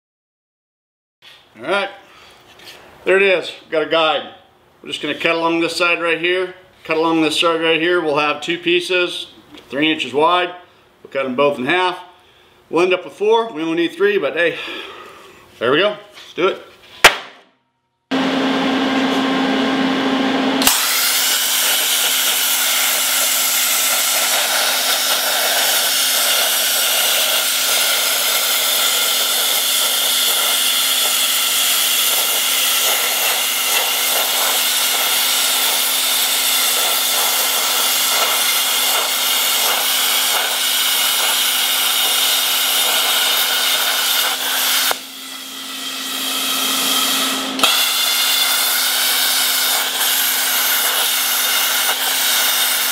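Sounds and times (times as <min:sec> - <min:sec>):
steady hum: 0:18.1 - 0:51.1
plasma cutter arc hissing: 0:20.6 - 0:52.9.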